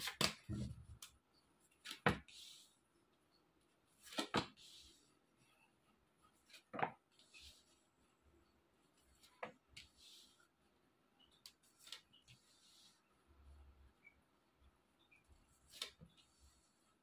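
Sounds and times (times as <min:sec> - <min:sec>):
cards shuffling: 0:00.0 - 0:01.2, 0:04.0 - 0:04.6.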